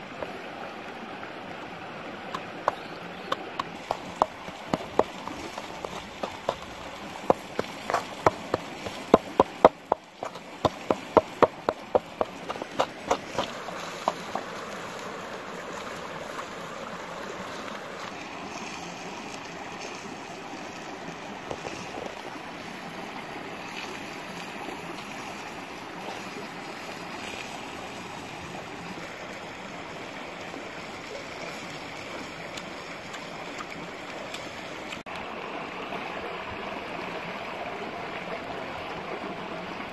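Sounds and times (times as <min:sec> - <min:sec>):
stream flowing over rocks: 0:00.0 - 0:39.9
pestle pounding in mortar: 0:02.6 - 0:14.4.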